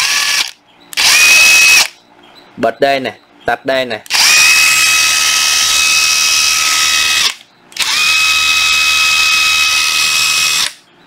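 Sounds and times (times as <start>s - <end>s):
cordless drill whining: 0.0s - 1.9s, 4.1s - 10.8s.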